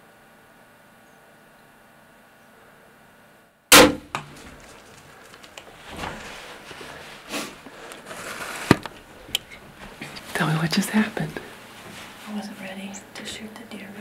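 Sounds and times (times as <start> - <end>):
loud rifle shot: 3.7 - 4.4
rustling and handling noise: 4.2 - 13.1.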